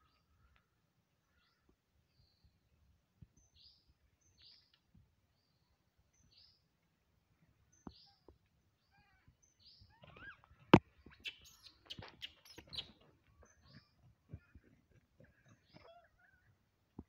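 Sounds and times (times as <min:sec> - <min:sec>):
faint bird chirps: 0:07.4 - 0:16.7.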